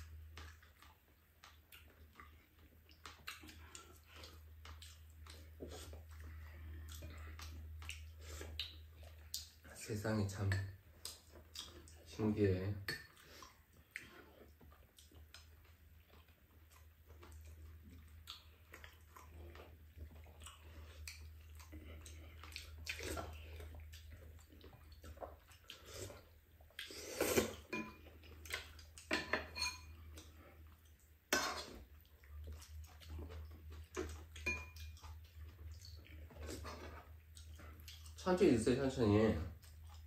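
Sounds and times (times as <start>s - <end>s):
utensils clinking on ceramic bowls: 29.1s - 29.9s.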